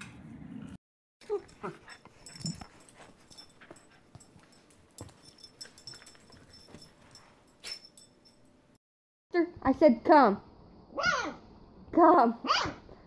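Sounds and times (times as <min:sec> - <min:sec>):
dog crying: 0:12.4 - 0:12.8.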